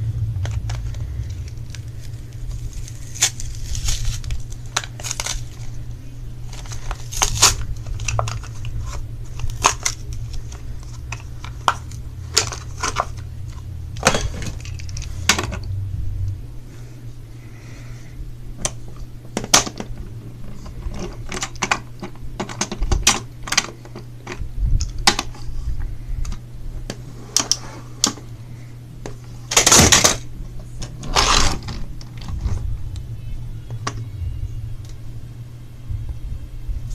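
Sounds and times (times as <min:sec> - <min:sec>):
steady low hum: 0:00.0 - 0:36.9.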